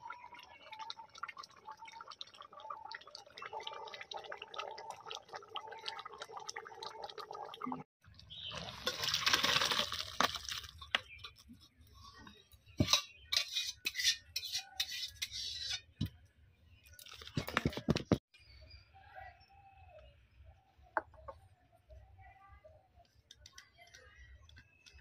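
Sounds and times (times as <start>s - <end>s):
curry bubbling and popping: 0.0s - 16.2s.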